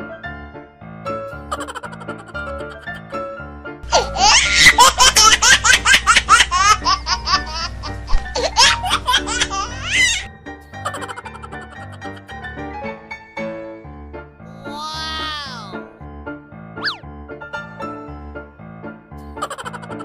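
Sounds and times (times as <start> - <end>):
light background music: 0.0 - 20.0
high-pitched rapid laughter: 1.5 - 3.2, 3.9 - 7.7, 8.4 - 12.2, 19.4 - 20.0.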